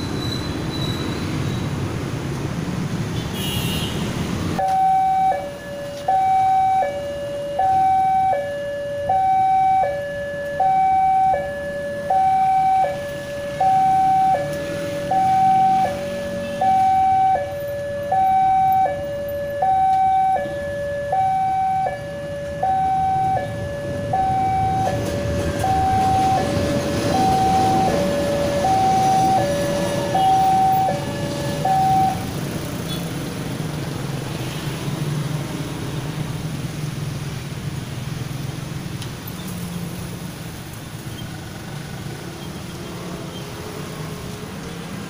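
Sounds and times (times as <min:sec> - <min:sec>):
motorcycle engines humming: 0:00.0 - 0:45.0
level crossing two-tone alarm: 0:04.6 - 0:32.3
passing train rumble: 0:11.6 - 0:45.0.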